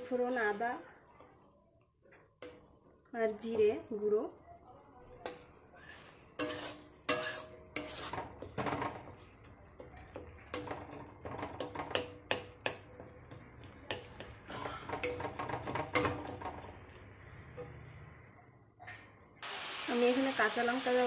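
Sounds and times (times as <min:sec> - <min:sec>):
spatula scraping metal pan: 0:05.2 - 0:12.3.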